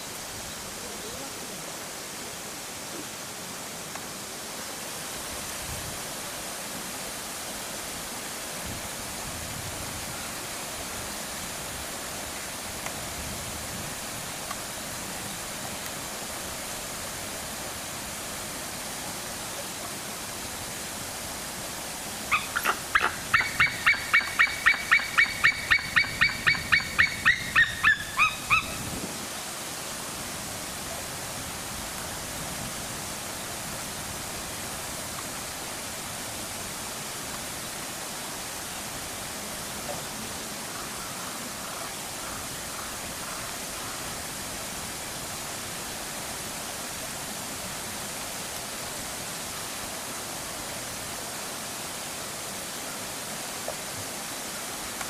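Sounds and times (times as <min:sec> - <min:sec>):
bird yelping: 0:22.3 - 0:28.8.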